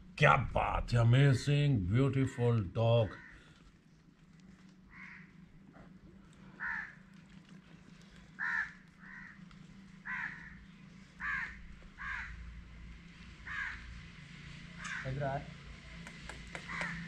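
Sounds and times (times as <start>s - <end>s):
faint low hum: 0.0s - 17.0s
crow cawing: 3.1s - 3.6s, 4.9s - 5.5s, 6.4s - 7.0s, 8.2s - 12.7s, 13.4s - 14.1s, 14.8s - 15.2s, 16.6s - 17.0s.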